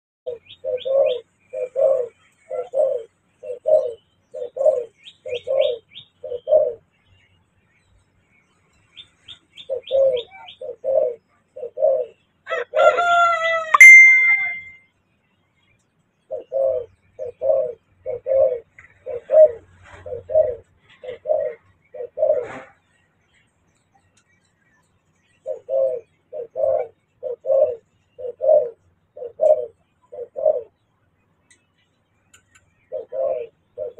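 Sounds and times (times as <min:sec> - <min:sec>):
dove cooing: 0:00.3 - 0:06.9, 0:09.3 - 0:14.7, 0:16.3 - 0:22.8, 0:25.4 - 0:30.8, 0:32.8 - 0:33.9
bird calling loudly: 0:13.6 - 0:14.8.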